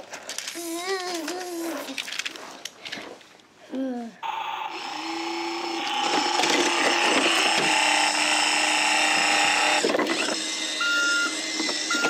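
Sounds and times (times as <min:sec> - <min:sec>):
toy humming engine sound: 0:04.2 - 0:12.0
plastic clatter: 0:06.0 - 0:07.8, 0:09.8 - 0:10.4
high reversing beep: 0:10.8 - 0:12.0.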